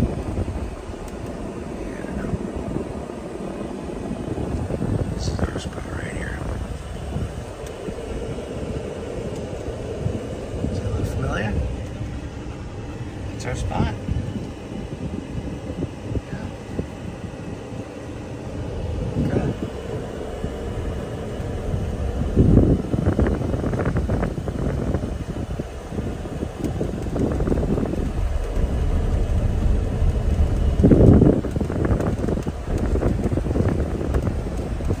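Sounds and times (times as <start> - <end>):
tyres rumbling on gravel: 20.0 - 35.0
loud thumps: 26.9 - 34.4.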